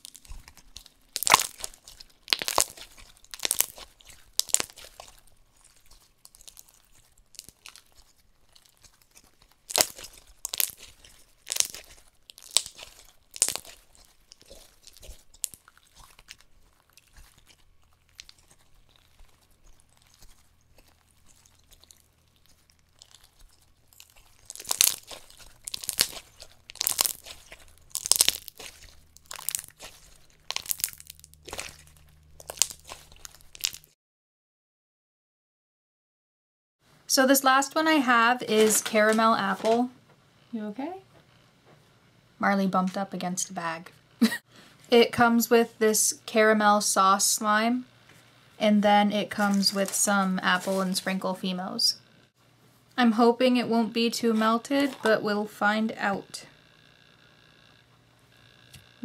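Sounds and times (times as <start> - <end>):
crunchy slime crackling: 0.0 - 34.0, 37.5 - 39.9, 48.6 - 52.0.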